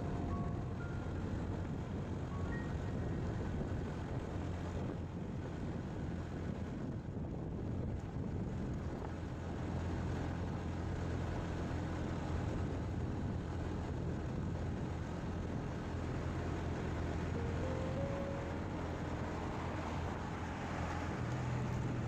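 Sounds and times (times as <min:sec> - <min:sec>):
faint rising tone: 0:00.0 - 0:03.5, 0:16.2 - 0:21.7
motorcycle engine hum: 0:00.0 - 0:22.0
road noise: 0:00.0 - 0:22.0.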